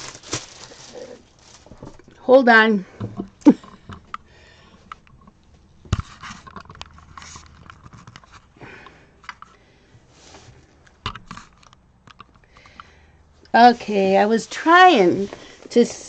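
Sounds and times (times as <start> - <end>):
camera handling rustles and clicks: 3.1 - 9.6, 10.7 - 12.9.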